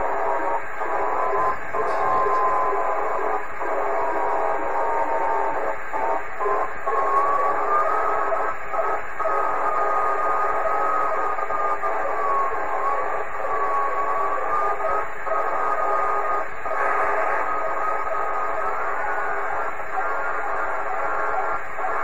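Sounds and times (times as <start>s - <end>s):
wandering whistling tone: 0.0s - 8.6s, 9.4s - 22.0s
radio receiver hiss: 16.7s - 21.2s.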